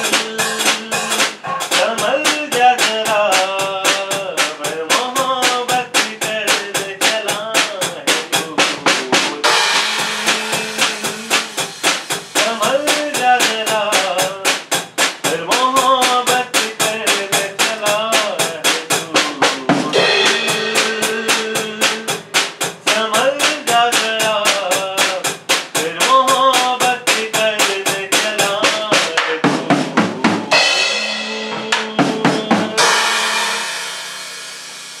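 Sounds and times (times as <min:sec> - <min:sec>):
drum kit beat: 0:00.0 - 0:35.0
instrumental melody: 0:29.4 - 0:35.0
cymbal washes: 0:32.8 - 0:35.0.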